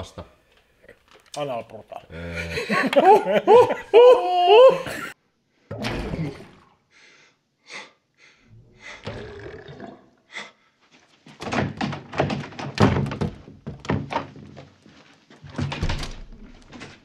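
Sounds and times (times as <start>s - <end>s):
thumps and clatters: 11.3s - 17.0s.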